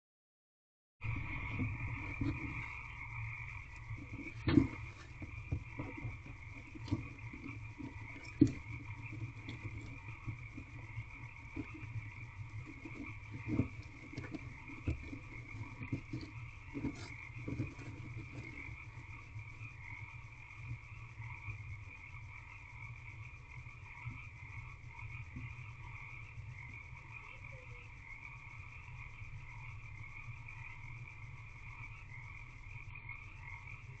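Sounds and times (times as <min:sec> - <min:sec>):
low hum: 0:01.0 - 0:19.7
frogs calling: 0:01.0 - 0:34.0
owl shifting on nest bedding: 0:01.2 - 0:18.7.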